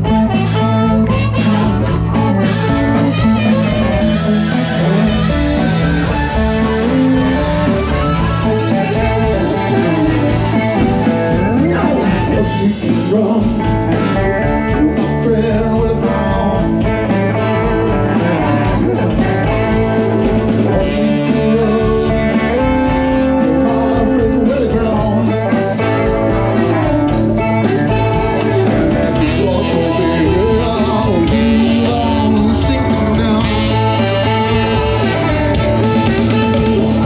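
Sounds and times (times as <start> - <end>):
drums: 0.0 - 37.0
electric guitar: 0.0 - 37.0
harmonica bending notes: 0.0 - 37.0.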